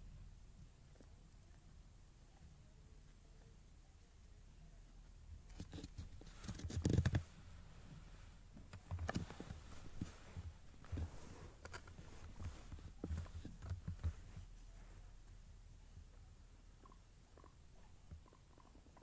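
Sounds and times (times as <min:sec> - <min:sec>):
guinea pig scrabbling in blankets: 0:05.4 - 0:15.0
fabric rustling: 0:05.8 - 0:15.2.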